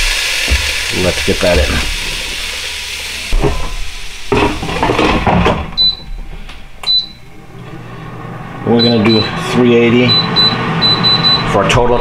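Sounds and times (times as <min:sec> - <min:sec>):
fish sizzling: 0:00.0 - 0:05.3
fryer basket knocks and scrapes: 0:03.3 - 0:05.8
touch panel beeps: 0:06.8 - 0:07.2, 0:08.8 - 0:09.3, 0:10.1 - 0:11.5.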